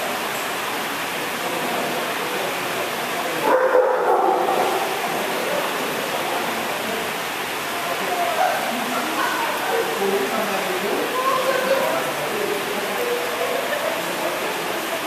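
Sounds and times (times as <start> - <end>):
dog barking: 3.4 - 4.9.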